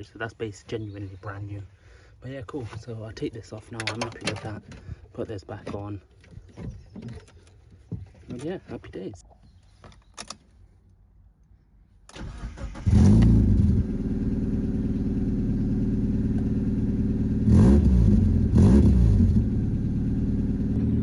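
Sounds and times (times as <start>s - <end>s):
starter cranking engine: 12.1s - 13.5s
car engine idling and revving: 12.4s - 21.0s.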